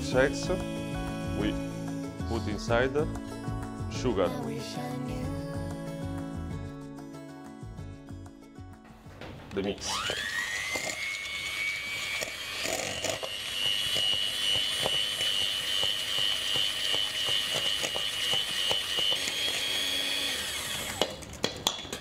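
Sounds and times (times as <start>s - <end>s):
electric mixer motor whine: 9.8s - 21.4s.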